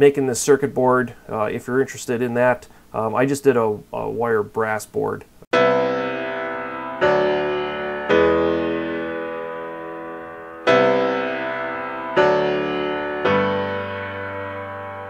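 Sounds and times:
slow piano chords: 0:05.6 - 0:15.0.

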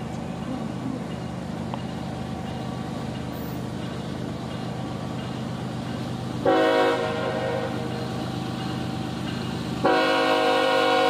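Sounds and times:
locomotive engine drone: 0:00.0 - 0:11.0.

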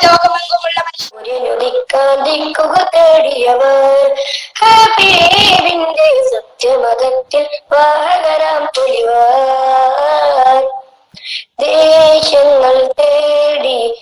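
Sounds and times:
child singing: 0:00.0 - 0:10.9, 0:11.6 - 0:14.0
breaths between phrases: 0:11.0 - 0:11.6.

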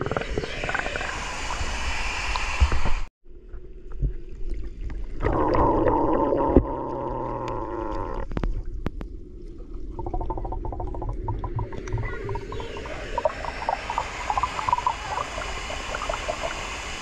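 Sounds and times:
water rushing and gurgling: 0:03.7 - 0:17.0.

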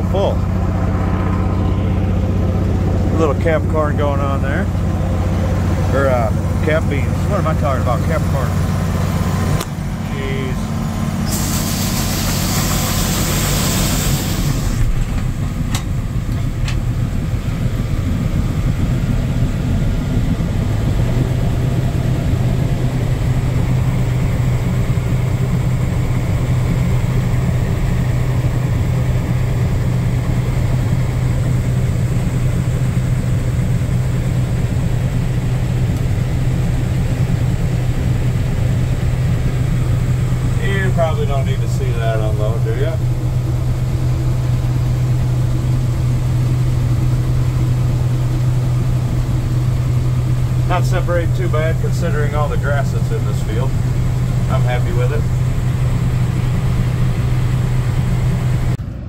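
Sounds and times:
combine harvester drone: 0:00.0 - 0:59.0
loud hiss: 0:11.2 - 0:15.0.

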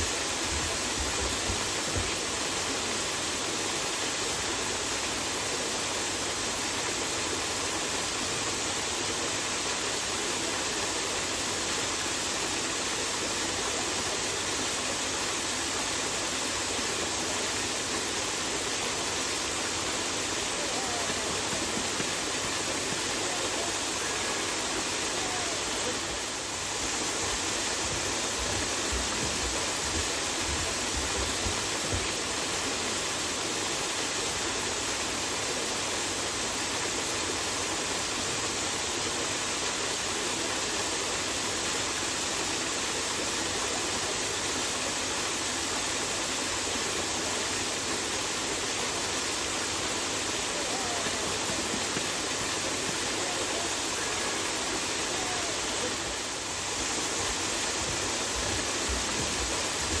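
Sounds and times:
waterfall splashing into pool: 0:00.0 - 1:00.0.

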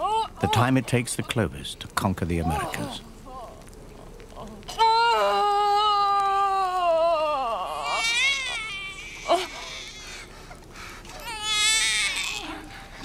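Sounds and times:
infant crying: 0:04.8 - 0:10.3, 0:11.2 - 0:12.7.

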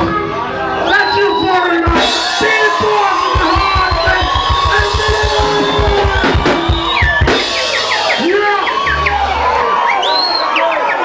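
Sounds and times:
rumba band playing: 0:01.8 - 0:09.9.

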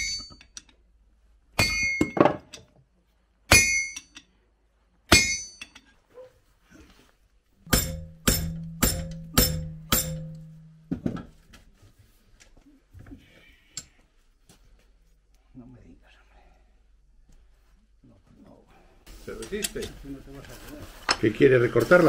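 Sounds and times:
hammer striking horseshoe on anvil: 0:00.0 - 0:00.6, 0:01.6 - 0:02.4, 0:03.5 - 0:04.3, 0:05.1 - 0:05.9, 0:07.7 - 0:10.9
hammer blows on shoe in vise: 0:07.7 - 0:10.7.

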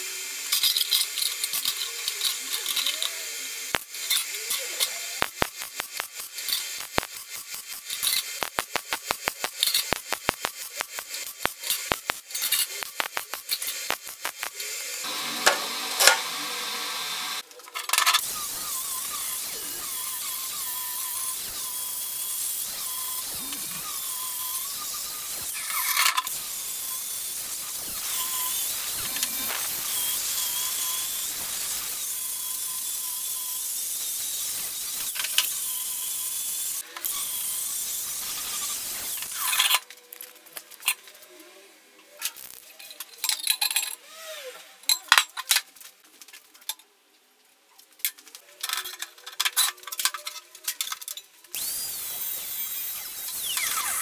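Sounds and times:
angle grinder whining: 0:00.0 - 0:17.4, 0:18.1 - 0:39.7, 0:51.5 - 0:54.0
metal parts clinking and knocking: 0:04.0 - 0:14.0, 0:17.7 - 0:18.2, 0:42.8 - 0:44.0.

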